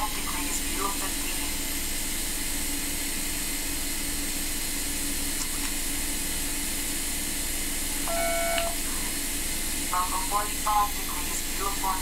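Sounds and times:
short electronic beep: 8.1 - 8.8.

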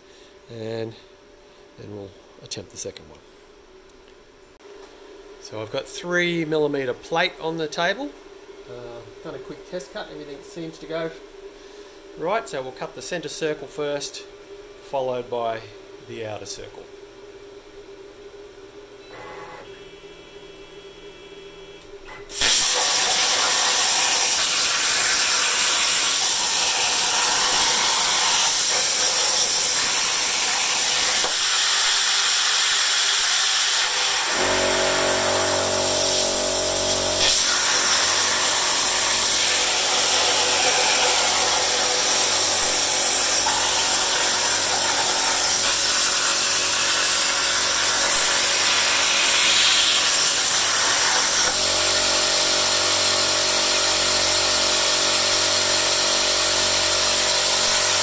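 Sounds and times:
air compressor humming: 19.0 - 58.0
plasma cutter hissing: 22.3 - 58.0.

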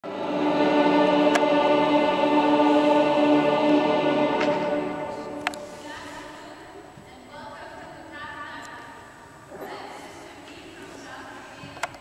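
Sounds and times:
pipe organ sustained chord: 0.0 - 5.8.

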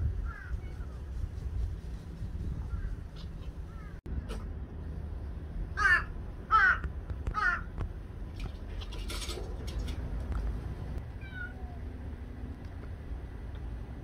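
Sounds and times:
rustle: 0.0 - 4.5
crow cawing: 5.8 - 6.8, 7.4 - 7.7.

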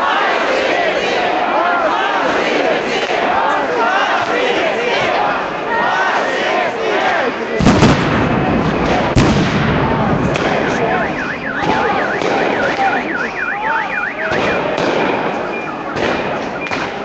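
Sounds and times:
crowd shouting: 0.0 - 17.0
sharp bangs: 7.6 - 17.0
electronic siren warbling: 10.6 - 17.0.

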